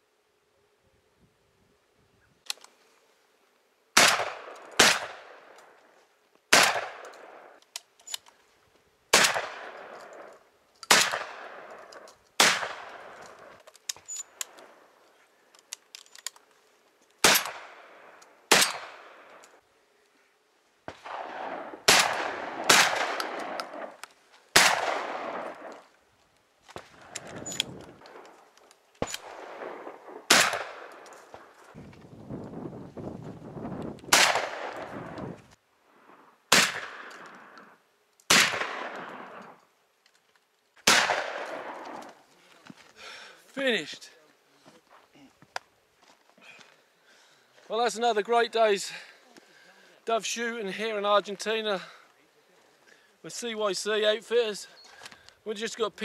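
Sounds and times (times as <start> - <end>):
shotgun shots echoing: 4.0 - 5.6, 6.5 - 7.6, 9.1 - 10.3, 10.9 - 13.6, 17.2 - 19.4, 20.9 - 25.8, 29.0 - 31.5, 34.1 - 35.2, 36.5 - 37.6, 38.3 - 39.6, 40.8 - 42.0.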